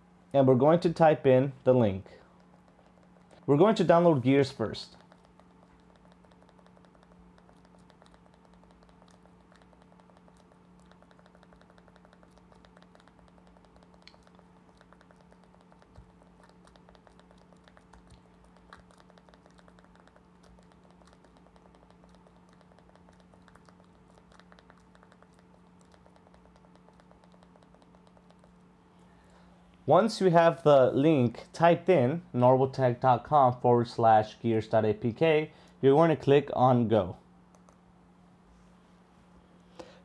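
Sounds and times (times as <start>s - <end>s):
faint electrical hum: 0.0s - 40.0s
faint rapid clicking: 2.2s - 29.5s, 37.4s - 37.9s.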